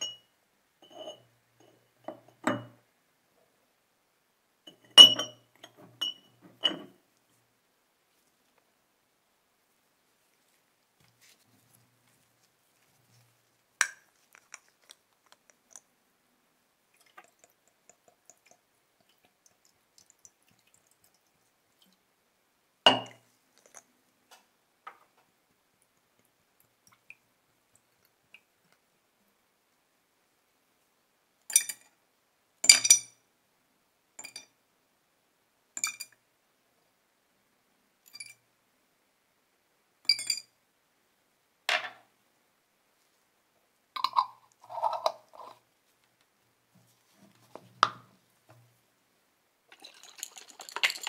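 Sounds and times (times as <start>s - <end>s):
metal clinking against glass jar: 4.8s - 6.9s, 40.1s - 40.5s, 49.7s - 51.0s
plastic bottles and caps clicking: 49.7s - 51.0s.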